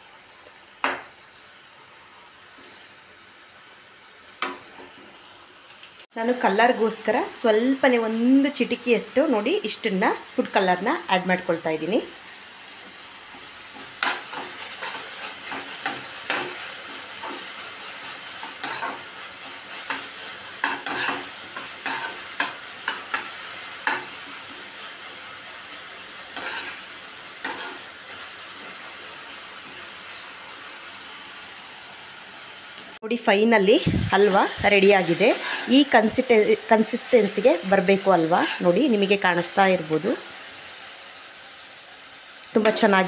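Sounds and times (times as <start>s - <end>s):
food sizzling: 0.0s - 43.0s
metal spoon scraping pan: 20.6s - 23.2s, 26.4s - 26.8s, 35.1s - 35.8s, 38.2s - 38.8s.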